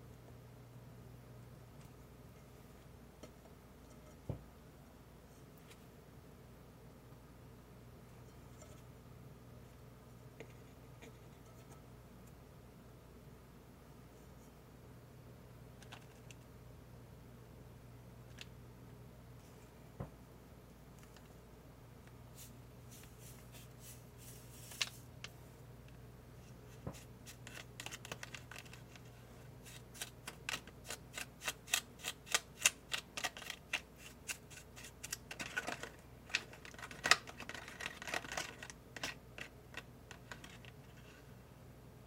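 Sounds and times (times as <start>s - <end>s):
soft rustles: 22.3s - 25.2s.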